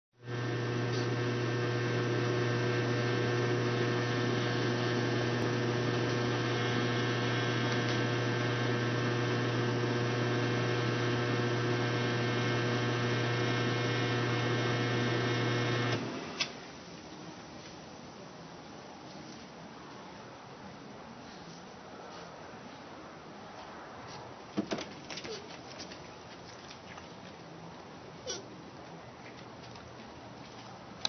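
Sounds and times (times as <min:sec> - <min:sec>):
electrical hum: 0:00.2 - 0:16.8.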